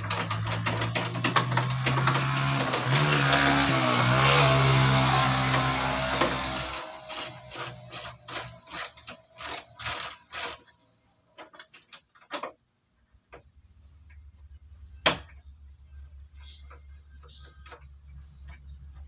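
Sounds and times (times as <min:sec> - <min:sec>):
ratchet wrench clicking: 0:00.0 - 0:03.7, 0:05.5 - 0:10.7.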